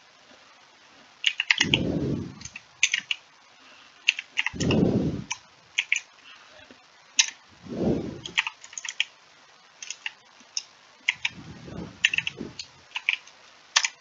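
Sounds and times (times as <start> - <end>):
computer keyboard typing: 1.2 - 1.8, 2.4 - 3.2, 4.1 - 6.0, 8.2 - 9.1, 11.1 - 11.4, 12.0 - 14.0
low muffled swells: 1.6 - 2.6, 4.5 - 5.4, 7.5 - 8.4, 11.2 - 12.8.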